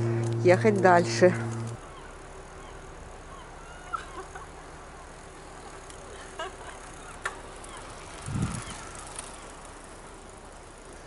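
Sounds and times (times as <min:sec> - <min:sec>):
bicycle tyre and wind noise: 0:05.1 - 0:11.0
bicycle clicks and rattles: 0:05.2 - 0:11.0.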